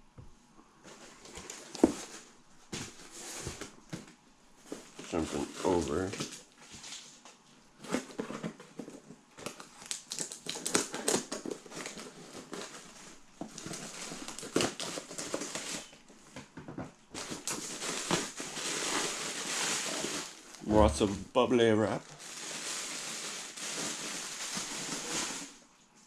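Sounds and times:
plastic packaging crinkling: 0:07.8 - 0:16.2, 0:17.1 - 0:25.6.

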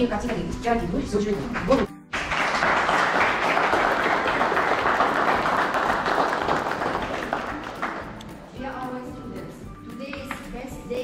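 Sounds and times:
people applauding: 0:01.6 - 0:08.4.

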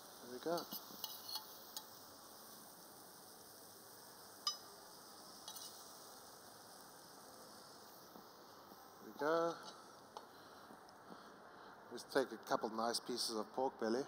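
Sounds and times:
faint steady hiss: 0:00.0 - 0:14.0
metal spoon clinking on a pan: 0:00.6 - 0:02.0, 0:04.4 - 0:04.7, 0:05.4 - 0:05.9.

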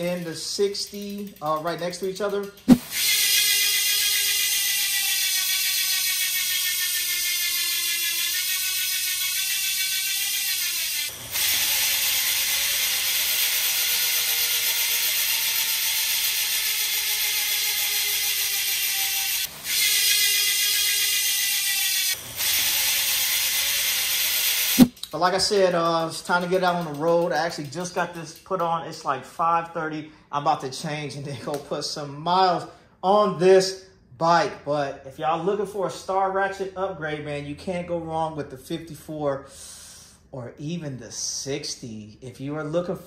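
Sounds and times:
freehub ticking buzz: 0:00.0 - 0:24.8.

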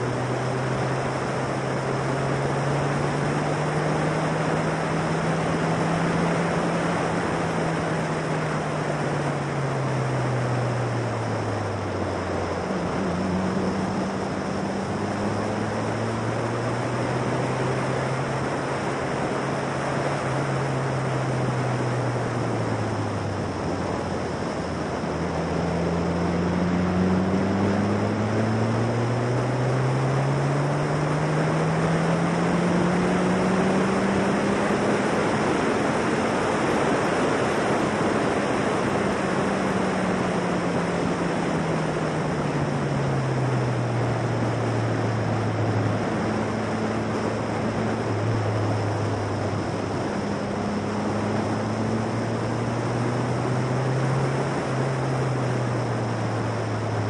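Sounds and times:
race car engine revving: 0:00.0 - 0:57.0
wind rush on microphone: 0:00.0 - 0:57.0.

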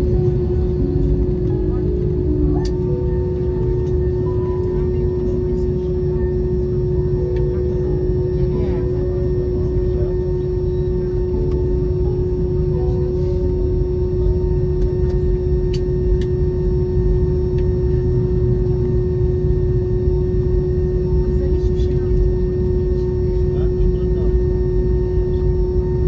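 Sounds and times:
constant hum: 0:00.0 - 0:26.0
jet cabin rumble: 0:00.0 - 0:26.0.

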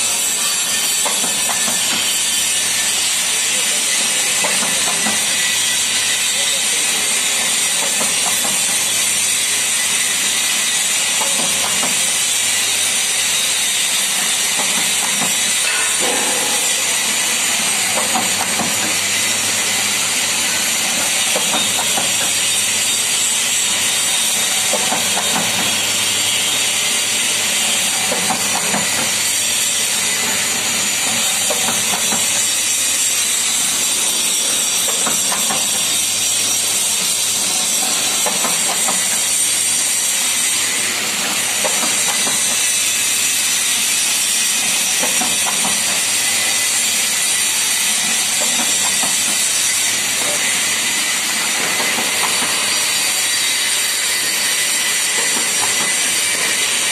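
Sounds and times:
machine loud steady hiss: 0:00.0 - 0:56.9.

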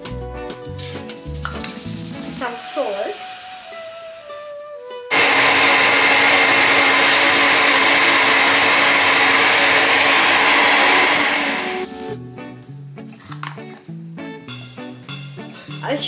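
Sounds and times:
blender running: 0:05.1 - 0:11.9.

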